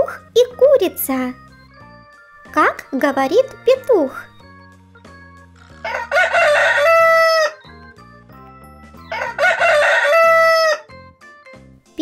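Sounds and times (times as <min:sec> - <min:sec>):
quiet background music: 0:00.0 - 0:12.0
rooster crowing: 0:05.8 - 0:07.7, 0:09.1 - 0:10.9.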